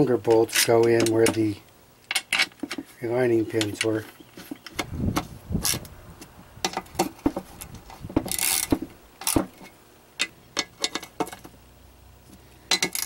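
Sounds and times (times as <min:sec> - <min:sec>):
metal bolts clicking and tapping: 0:08.2 - 0:11.5, 0:12.7 - 0:13.0.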